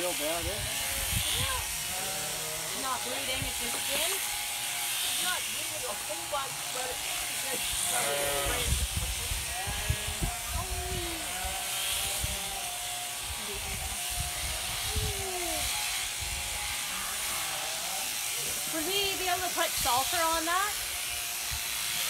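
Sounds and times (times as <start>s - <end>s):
electric clippers buzzing: 0.0s - 22.0s
sheep bleating: 0.6s - 4.1s, 7.0s - 8.8s, 9.4s - 18.8s.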